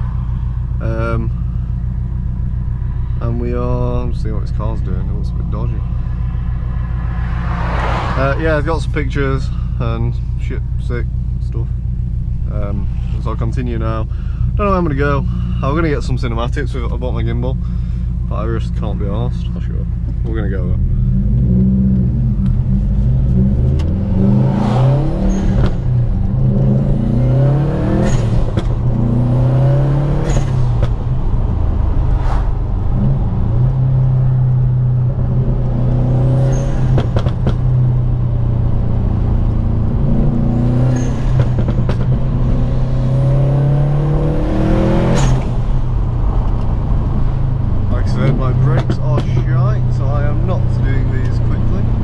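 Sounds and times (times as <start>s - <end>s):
car engine accelerating hard: 2.2s - 9.5s, 18.5s - 52.0s.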